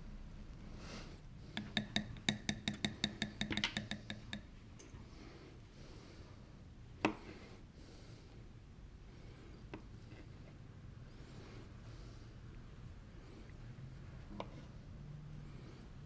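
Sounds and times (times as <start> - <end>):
utensil tapping a dish: 1.5 - 4.5.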